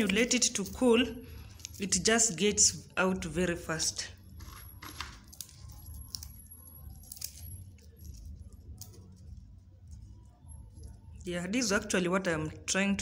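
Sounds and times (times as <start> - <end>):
peanuts rustling and clicking: 0.0 - 2.6, 4.2 - 11.3
steady low hum: 0.0 - 11.9.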